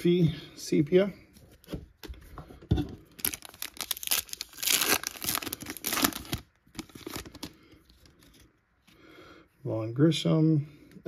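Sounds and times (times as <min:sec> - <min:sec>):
wrapper tearing and crinkling: 0:03.1 - 0:07.6.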